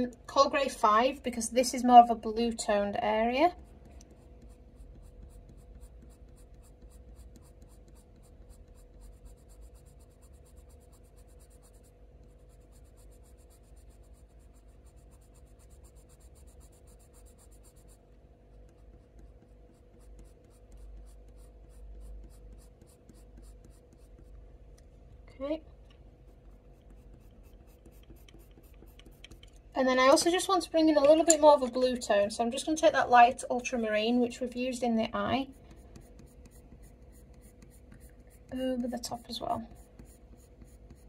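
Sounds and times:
steady low hum: 0:00.0 - 0:41.0
coloured pencil scratching on paper: 0:02.6 - 0:24.4, 0:26.2 - 0:29.5, 0:33.7 - 0:41.0.

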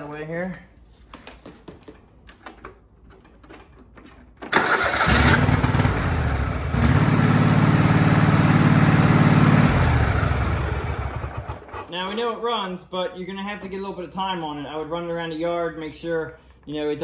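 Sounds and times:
lawn tractor engine starting: 0:03.1 - 0:11.9.

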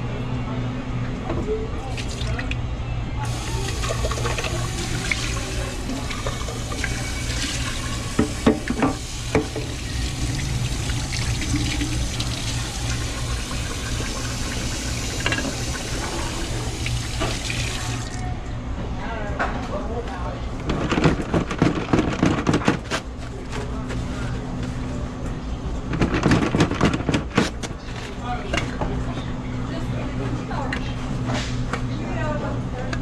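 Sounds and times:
tap water running into sink: 0:03.3 - 0:18.3.

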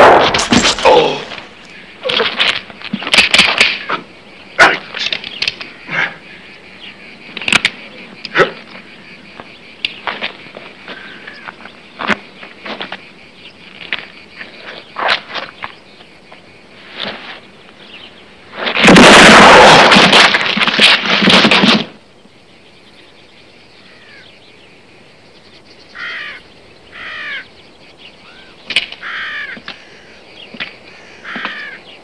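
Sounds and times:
crows cawing: 0:05.6 - 0:07.1, 0:23.8 - 0:24.3, 0:25.9 - 0:27.5, 0:28.2 - 0:30.2, 0:30.9 - 0:31.9.

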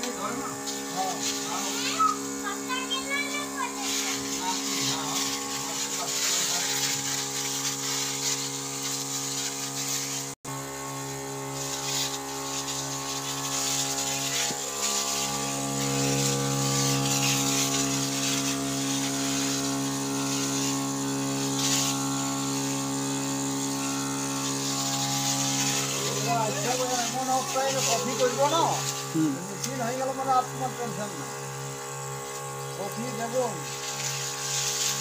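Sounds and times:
electric pump humming: 0:00.0 - 0:35.0
spray hissing: 0:00.0 - 0:35.0.

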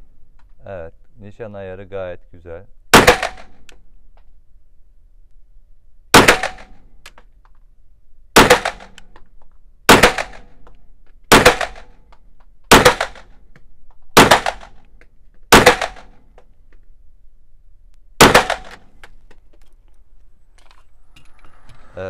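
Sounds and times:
gunshot echo off walls: 0:02.9 - 0:03.6, 0:06.1 - 0:06.9, 0:08.4 - 0:09.0, 0:09.9 - 0:10.6, 0:11.3 - 0:12.0, 0:12.7 - 0:13.4, 0:14.2 - 0:14.8, 0:15.5 - 0:16.2, 0:18.2 - 0:19.0
pistol shots: 0:02.9 - 0:03.6, 0:06.1 - 0:06.8, 0:08.4 - 0:09.1, 0:09.9 - 0:10.5, 0:11.3 - 0:12.0, 0:12.7 - 0:13.4, 0:14.2 - 0:14.8, 0:15.5 - 0:16.2, 0:18.2 - 0:18.9.

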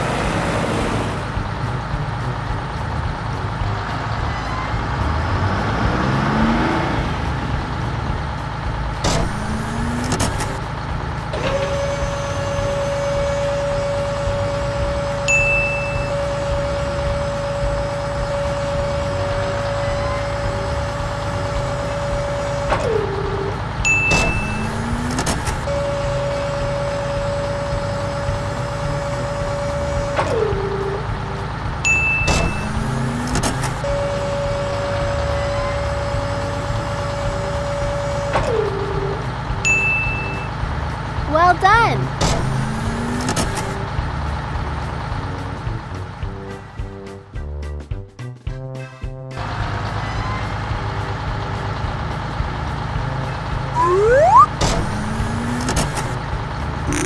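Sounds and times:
cartoon engine rumble: 0:53.7 - 0:56.2
short rising whirs: 0:53.8 - 0:56.2.

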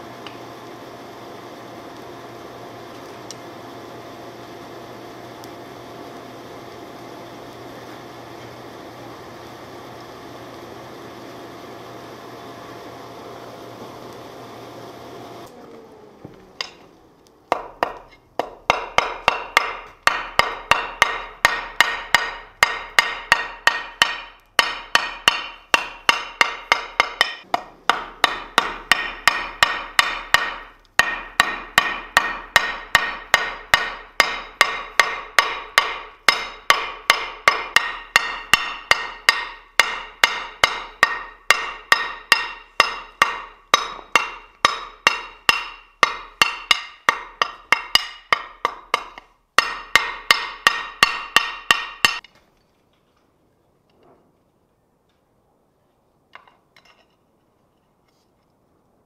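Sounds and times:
hammer striking hot steel bar: 0:16.6 - 0:16.9, 0:17.5 - 0:52.3.

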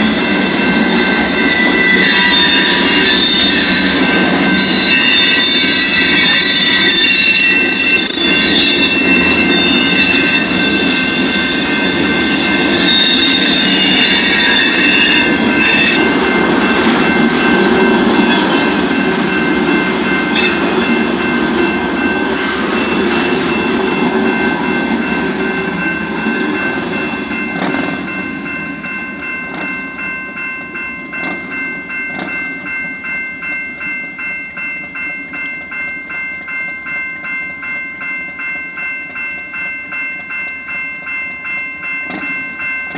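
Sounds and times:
train wheel squeal: 0:00.0 - 0:27.7
crossing warning bell ringing: 0:00.0 - 0:42.9
rumble of freight cars: 0:00.0 - 0:42.9.

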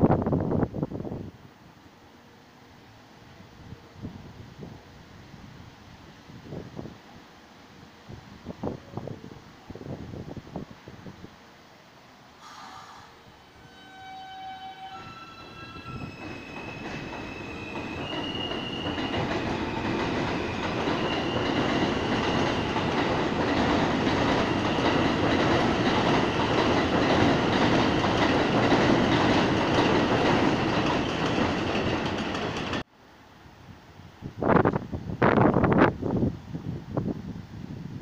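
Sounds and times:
train wheels on elevated track: 0:12.4 - 0:32.9.

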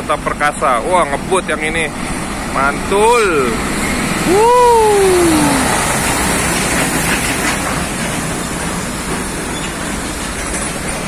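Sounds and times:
diesel truck engine: 0:00.0 - 0:11.0
tyre noise on wet road: 0:00.0 - 0:11.0
falling tone: 0:04.3 - 0:06.2.

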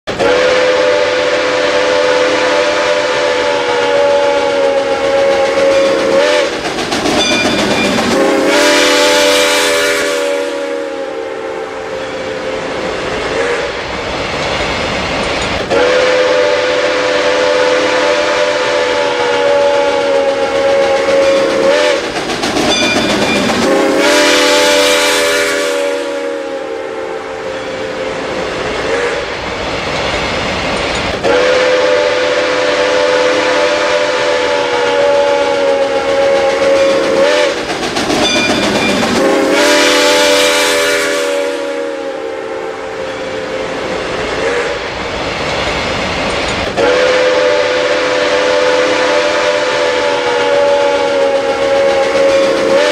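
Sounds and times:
freight train running: 0:00.0 - 0:52.9
steam locomotive whistle: 0:00.1 - 0:06.6, 0:07.2 - 0:13.9, 0:15.6 - 0:29.4, 0:31.2 - 0:45.0, 0:46.7 - 0:52.9.

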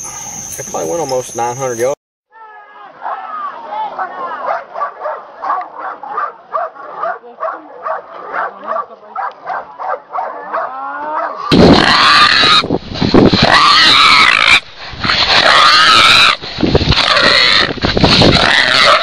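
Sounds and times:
hog squealing loudly: 0:11.4 - 0:12.7, 0:13.3 - 0:19.0.

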